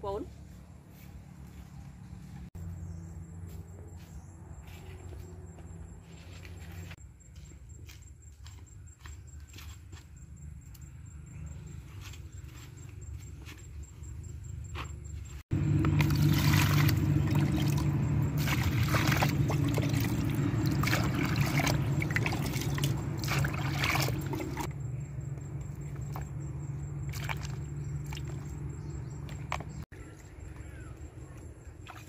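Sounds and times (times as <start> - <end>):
water splashing in a plastic basin: 15.6 - 24.7, 25.7 - 29.8, 31.7 - 32.0.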